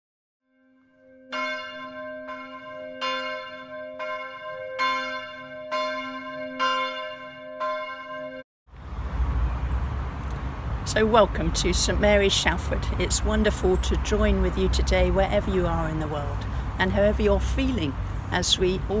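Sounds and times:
church bells ringing: 1.1 - 8.4.

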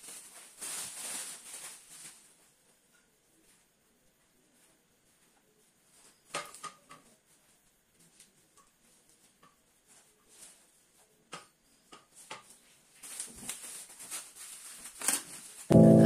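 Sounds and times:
plastic bag crinkling: 0.0 - 2.4, 13.0 - 15.7.

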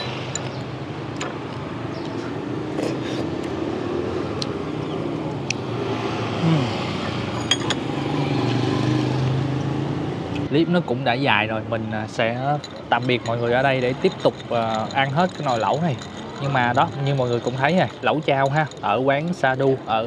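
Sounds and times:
street traffic hum: 0.0 - 20.0
tableware clinking: 7.3 - 7.9, 12.4 - 19.6.

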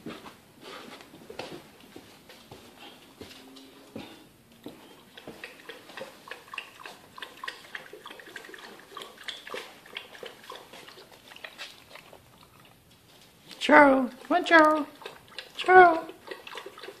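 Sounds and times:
dog lapping water: 4.7 - 13.4, 14.0 - 17.0.

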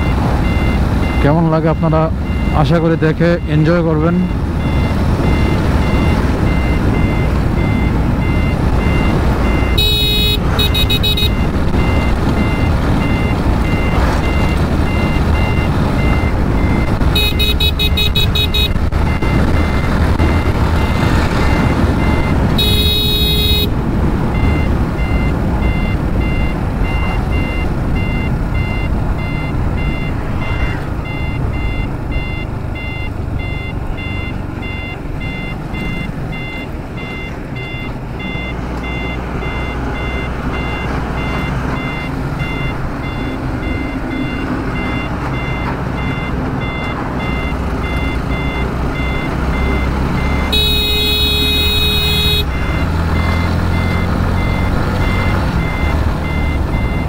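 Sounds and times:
motorcycle engine and wind rumble: 0.0 - 38.5
vehicle horn blowing: 9.8 - 11.4, 17.2 - 18.8, 22.6 - 23.8, 50.5 - 52.5.

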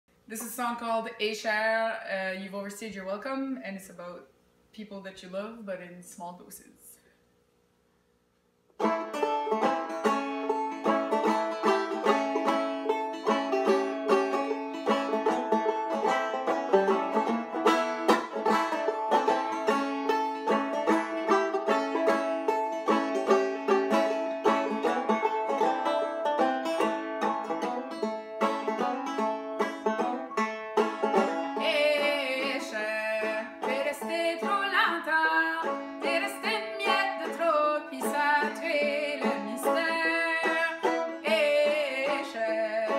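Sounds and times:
banjo picking: 8.8 - 42.9
woman singing: 31.6 - 42.9.

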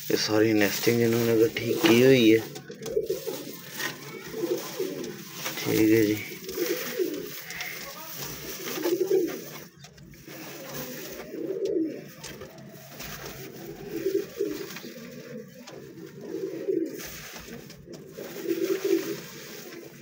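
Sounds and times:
pigeon cooing: 0.2 - 20.0.

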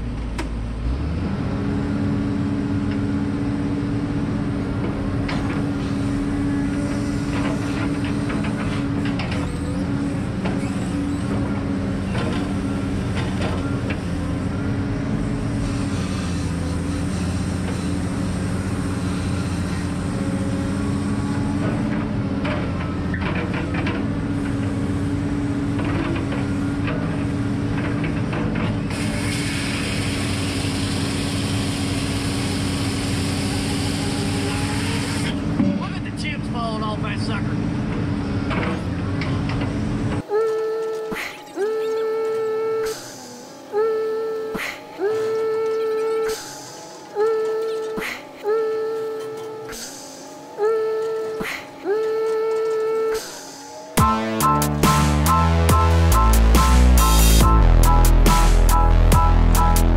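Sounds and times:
diesel engine under load: 0.0 - 59.9
clunks: 4.8 - 14.3, 21.6 - 24.7, 37.8 - 59.3.

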